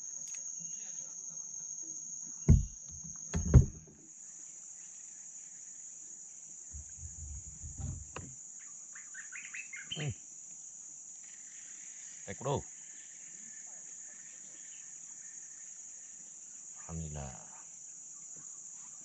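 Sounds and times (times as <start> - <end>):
insects droning: 0.0 - 19.0
loud thumps: 2.5 - 3.9, 6.8 - 8.3
soft knocks: 2.5 - 3.9, 6.8 - 8.3.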